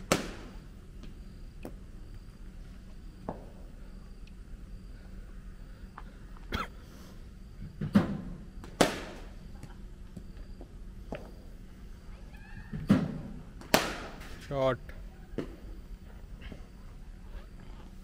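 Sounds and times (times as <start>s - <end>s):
cricket ball and bat knocks: 12.8s - 14.2s.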